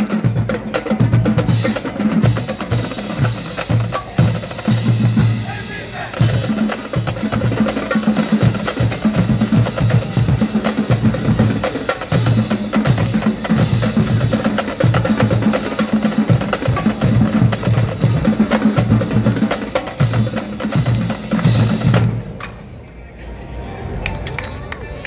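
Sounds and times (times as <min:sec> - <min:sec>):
drumline playing cadence: 0:00.0 - 0:24.6.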